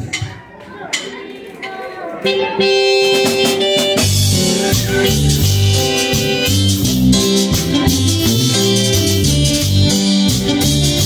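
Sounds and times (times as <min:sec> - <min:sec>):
keyboard sustained chords: 0:02.3 - 0:11.0
drum kit with cymbals: 0:02.6 - 0:11.0
electric bass guitar: 0:02.6 - 0:11.0.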